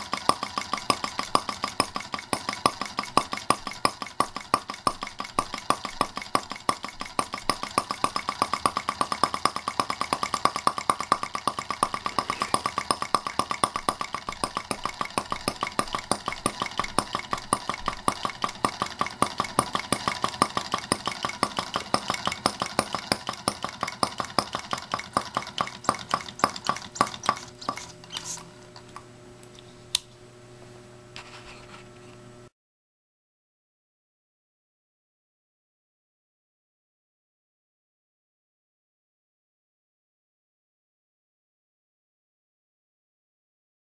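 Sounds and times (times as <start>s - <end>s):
model engine running: 0.0s - 28.4s.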